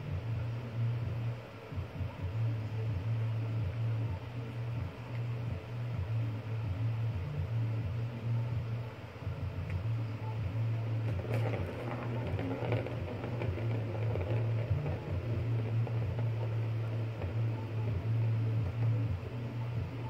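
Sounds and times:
steady low hum: 0.0s - 20.0s
plastic ball rattling in toy: 11.1s - 17.4s.

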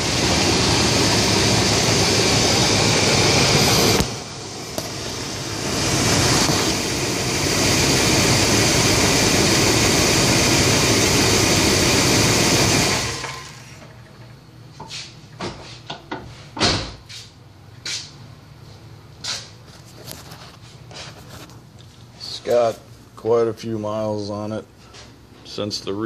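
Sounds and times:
engine running: 0.0s - 14.4s.

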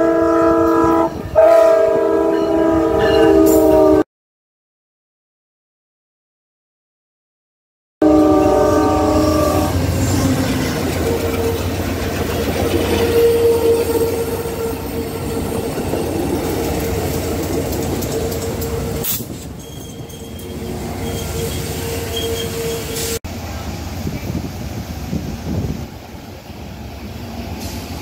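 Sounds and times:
train passing: 8.0s - 28.0s
wheels rumbling on rail: 8.0s - 28.0s
ringing tone from wheels: 19.6s - 23.0s.

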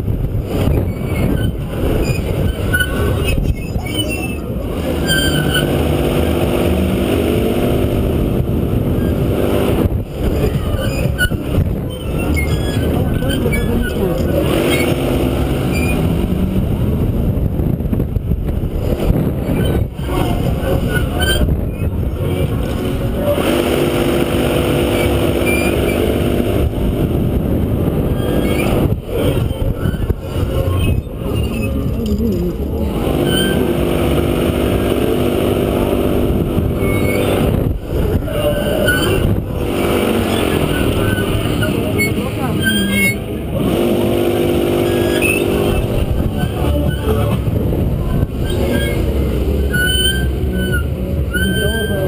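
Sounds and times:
gondola squeaking: 0.0s - 52.0s
rushing air: 14.4s - 42.4s.

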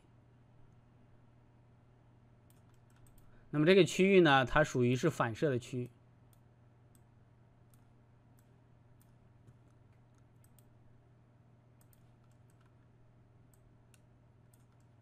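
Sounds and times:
low steady hum: 0.0s - 15.0s
computer mouse clicks: 2.4s - 3.3s, 6.3s - 10.8s, 11.8s - 12.9s, 13.5s - 15.0s.

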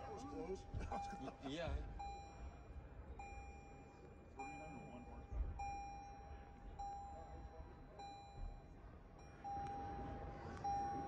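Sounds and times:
car warning chime: 0.0s - 11.0s.

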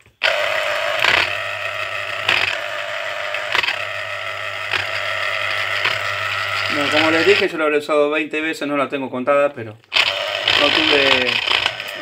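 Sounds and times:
juicer motor hum: 0.0s - 7.5s, 9.9s - 12.0s
rind scraping on reamer: 0.2s - 7.5s, 10.0s - 12.0s.

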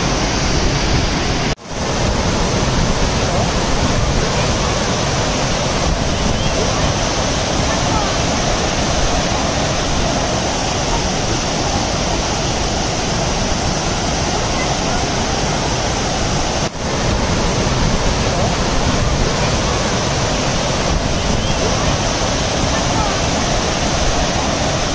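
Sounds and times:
waterfall rushing: 0.0s - 24.9s.

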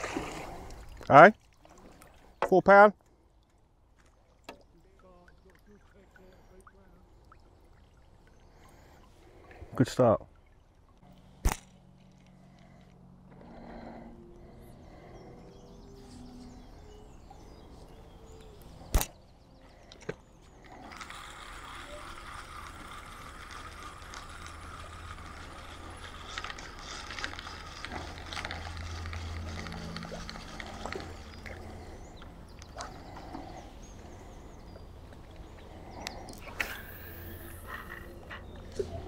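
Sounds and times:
sharp click: 18.9s - 19.2s
fishing reel whirring: 20.5s - 34.4s, 35.7s - 39.0s.

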